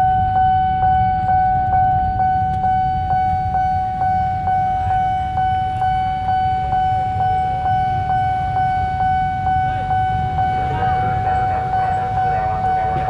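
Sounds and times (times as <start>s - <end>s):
level crossing warning bell: 0.0s - 13.0s
low rumble: 8.8s - 13.0s.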